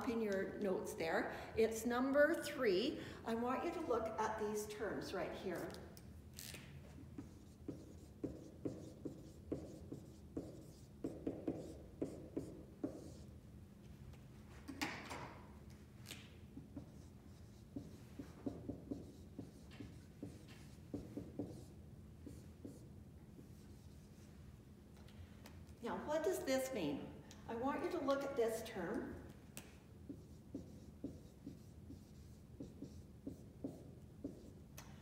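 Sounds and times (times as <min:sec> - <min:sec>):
marker squeaking on whiteboard: 0:30.1 - 0:34.5.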